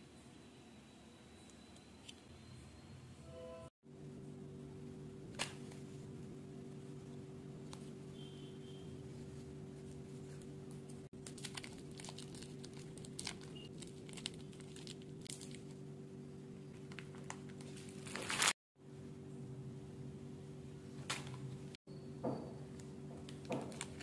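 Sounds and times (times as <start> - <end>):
low hum: 0.1 - 18.2
candy wrapper crinkling: 11.2 - 15.8.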